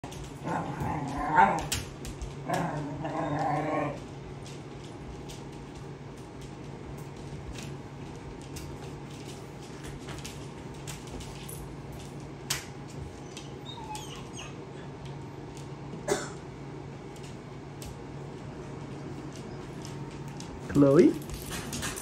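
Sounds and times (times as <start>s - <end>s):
puppy whining: 0.4s - 4.1s, 13.1s - 15.0s
puppy yips: 13.2s - 14.6s.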